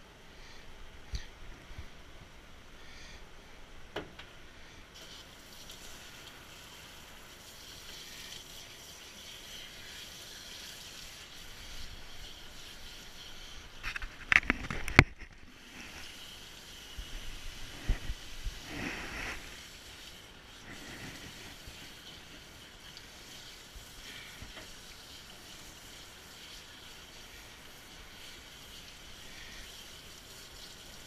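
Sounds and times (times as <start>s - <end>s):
water spraying onto dog: 15.6s - 31.0s.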